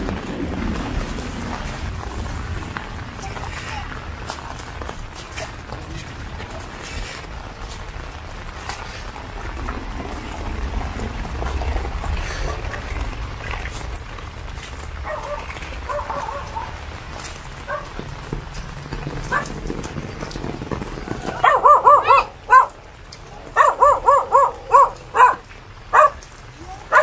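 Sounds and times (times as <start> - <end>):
rain hissing: 0.0 - 27.0
dog barking: 15.0 - 16.8, 17.6 - 18.0, 19.3 - 19.5, 21.3 - 22.8, 23.5 - 26.2.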